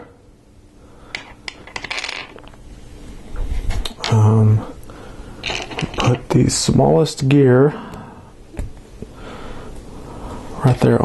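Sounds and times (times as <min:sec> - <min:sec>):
plastic pieces clicking and rattling: 0:05.4 - 0:06.2.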